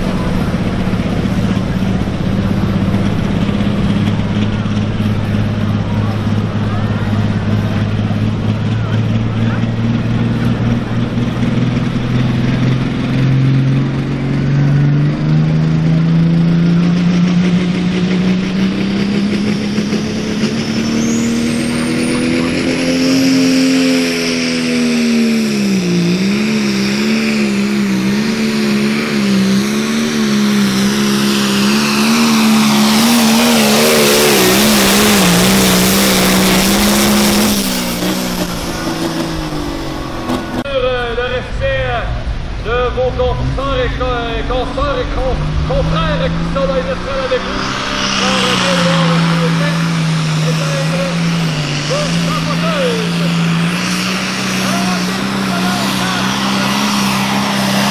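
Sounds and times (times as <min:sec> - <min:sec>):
tractor diesel engine: 0:00.0 - 0:57.9
loud hissing: 0:43.6 - 0:57.9.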